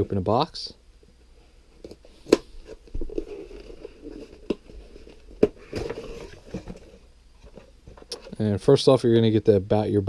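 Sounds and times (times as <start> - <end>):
cardboard scraping and rustling: 2.0 - 8.1.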